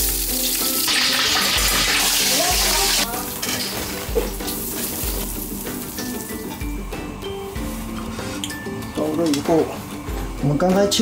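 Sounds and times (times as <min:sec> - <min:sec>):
liquid pouring into hot oil: 0:00.0 - 0:03.0
background music: 0:00.0 - 0:11.0.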